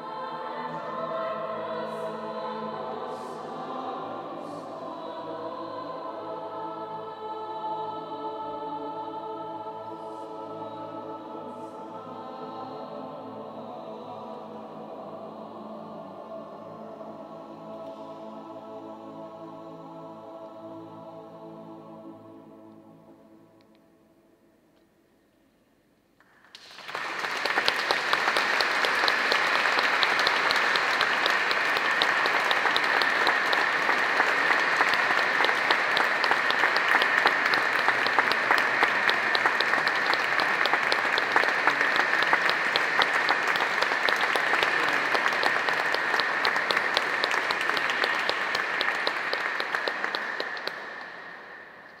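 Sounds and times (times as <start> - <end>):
audience applauding: 26.2 - 52.0.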